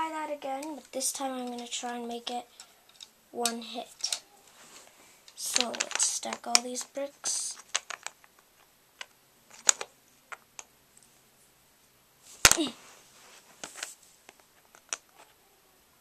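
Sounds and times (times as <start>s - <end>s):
plastic bricks clicking: 0.6s - 4.2s, 5.3s - 10.7s, 14.6s - 15.2s.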